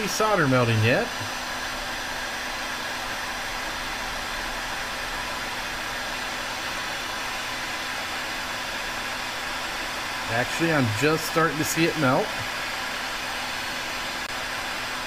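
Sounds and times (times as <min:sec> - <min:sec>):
heat gun blowing air: 0:00.0 - 0:15.0.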